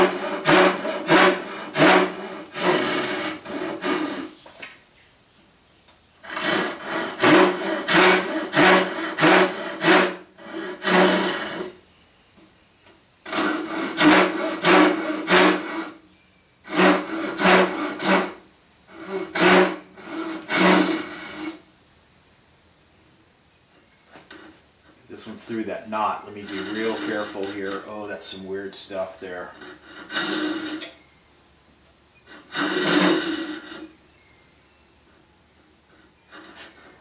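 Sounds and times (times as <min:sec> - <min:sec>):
hand saw rasping strokes: 0:00.0 - 0:04.4, 0:06.2 - 0:11.8, 0:13.3 - 0:16.0, 0:16.7 - 0:21.6, 0:25.2 - 0:31.0, 0:32.3 - 0:34.0, 0:35.9 - 0:37.0.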